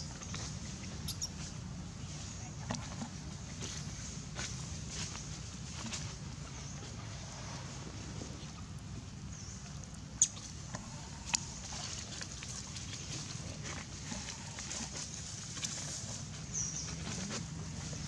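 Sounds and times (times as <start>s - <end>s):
short high squeak: 1.1s - 1.4s.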